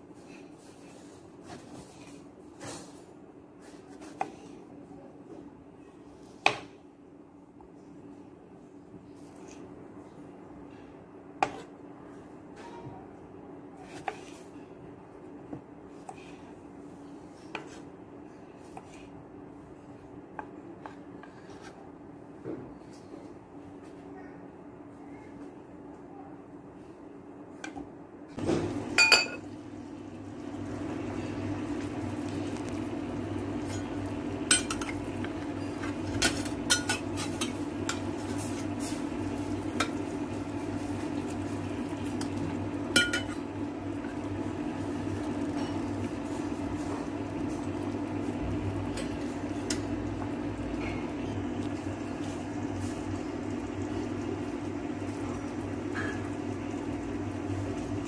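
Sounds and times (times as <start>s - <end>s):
electric cooktop hum: 0.0s - 58.0s.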